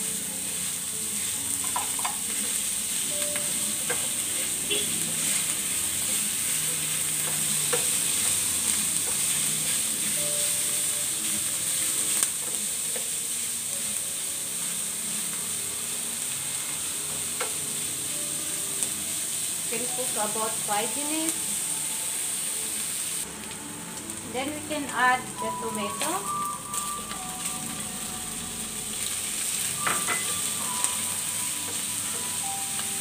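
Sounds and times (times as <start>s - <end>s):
meat sizzling in a frying pan: 0.0s - 33.0s.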